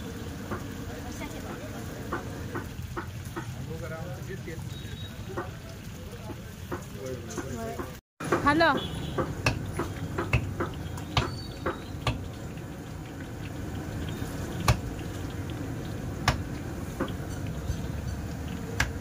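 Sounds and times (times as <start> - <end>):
oil sizzling and bubbling: 0.0 - 19.0
sharp oil pops: 16.2 - 17.2.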